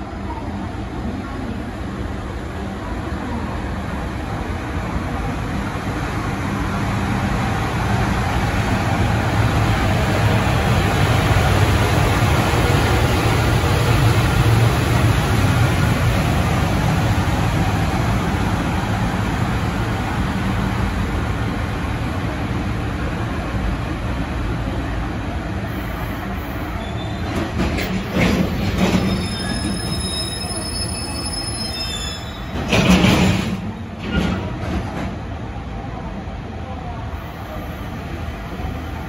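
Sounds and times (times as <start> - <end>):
freight train wheels rumbling: 0.0 - 39.0
high brake squeals: 26.6 - 27.4, 28.9 - 32.7.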